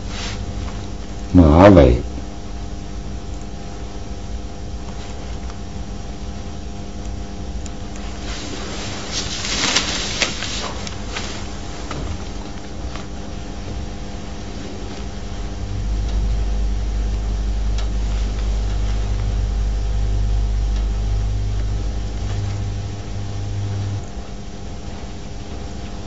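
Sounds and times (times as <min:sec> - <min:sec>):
low hum and hiss: 0:00.0 - 0:26.0
deep rumble: 0:13.5 - 0:24.1.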